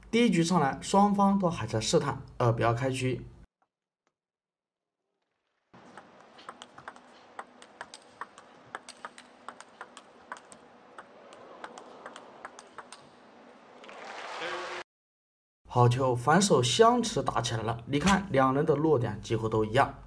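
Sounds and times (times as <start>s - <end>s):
ball striking paddles and table: 5.8s - 14.0s
faint arena background noise: 5.8s - 14.8s.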